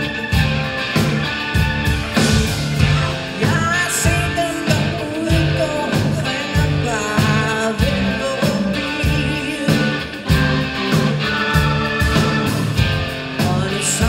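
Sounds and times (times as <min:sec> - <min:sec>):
electric guitars: 0:00.0 - 0:14.0
steady drum beat: 0:00.0 - 0:14.0
woman singing: 0:03.0 - 0:10.2, 0:13.4 - 0:14.0.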